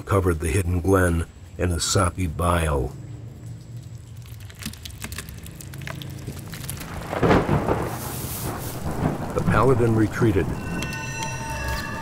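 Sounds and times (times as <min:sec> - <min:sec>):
wet drips and splats: 0:00.0 - 0:10.2
low steady drone: 0:00.7 - 0:04.4.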